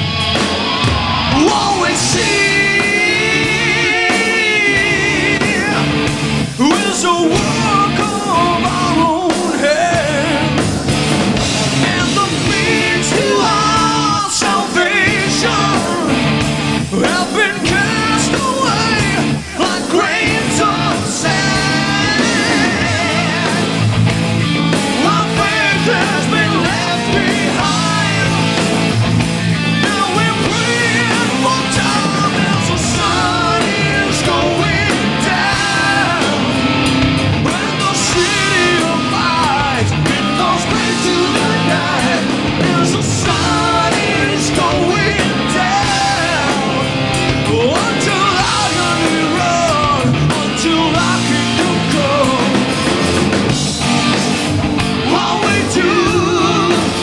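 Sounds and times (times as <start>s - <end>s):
hard rock band playing: 0.0s - 57.0s
man singing: 1.3s - 10.6s, 11.8s - 16.3s, 16.9s - 23.9s, 25.0s - 28.7s, 29.7s - 36.5s, 37.4s - 52.7s, 55.0s - 57.0s.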